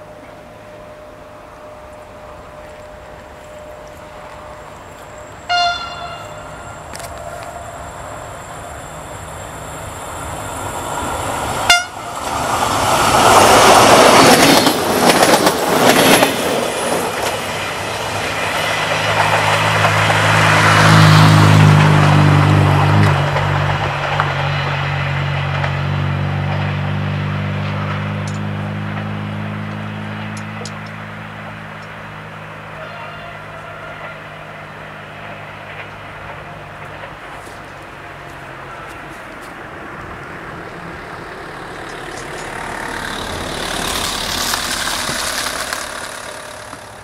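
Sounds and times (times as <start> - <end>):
diesel train engine drone: 0.0 - 47.0
loud rushing noise: 34.2 - 47.0.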